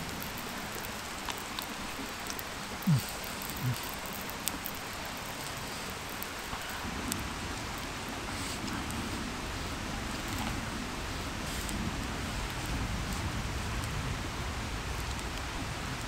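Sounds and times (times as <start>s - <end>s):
forest ambience hiss: 0.0s - 16.0s.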